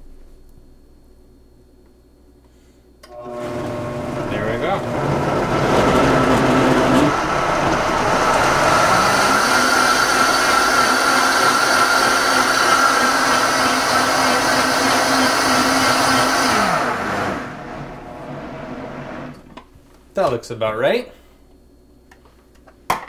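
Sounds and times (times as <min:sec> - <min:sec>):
blender motor whining: 0:03.1 - 0:19.4
motor winding down: 0:03.2 - 0:19.4.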